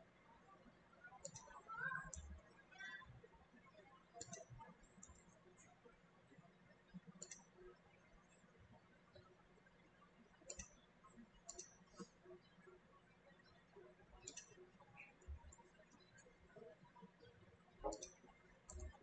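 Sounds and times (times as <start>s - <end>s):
faint low hum: 0.0s - 19.0s
computer mouse clicks: 1.1s - 3.2s, 4.2s - 5.4s, 7.0s - 7.6s, 10.5s - 10.8s, 11.4s - 12.2s, 14.2s - 17.2s, 17.8s - 19.0s.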